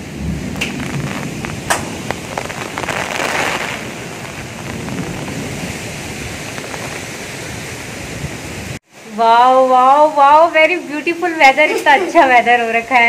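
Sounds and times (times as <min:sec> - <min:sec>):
steady rain falling: 0:00.0 - 0:13.0
raindrops ticking close: 0:00.1 - 0:07.9.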